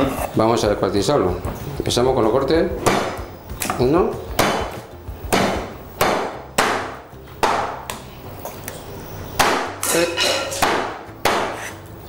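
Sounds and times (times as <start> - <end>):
meat cleaver chopping on wooden board: 4.4 - 7.9, 10.5 - 11.7.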